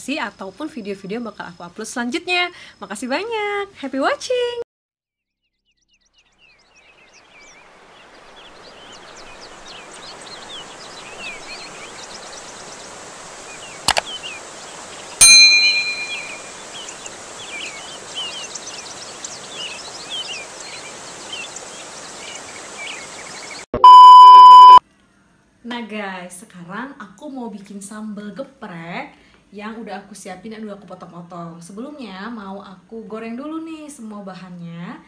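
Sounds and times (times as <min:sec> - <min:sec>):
small birds chirping: 0:05.4 - 0:23.7
steady hiss: 0:07.0 - 0:15.2
loud metallic ding: 0:15.2 - 0:16.6.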